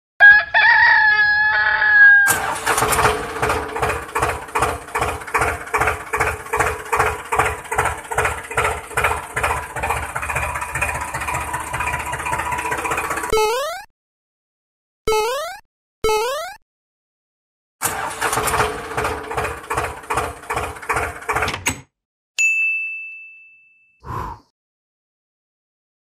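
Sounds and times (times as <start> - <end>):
engine chugging idle: 2.3 - 13.3, 17.8 - 21.5
short high-pitched tone: 13.3 - 13.9.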